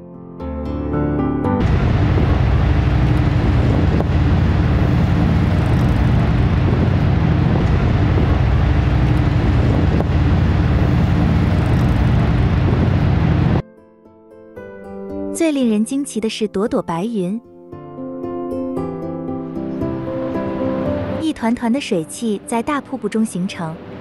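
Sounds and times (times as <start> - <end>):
waterfall roaring: 1.6 - 13.6.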